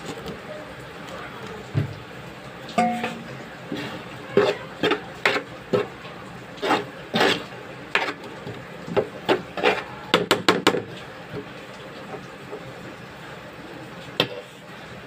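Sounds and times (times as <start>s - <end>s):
utensil scraping cookware: 2.8s - 10.1s.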